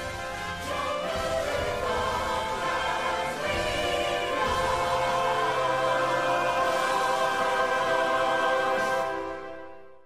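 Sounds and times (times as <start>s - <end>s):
choir singing: 0.0s - 9.9s.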